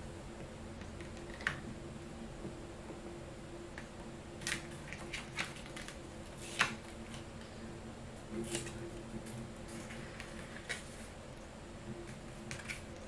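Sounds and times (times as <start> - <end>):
paper rustling: 4.4 - 7.3, 9.7 - 11.1.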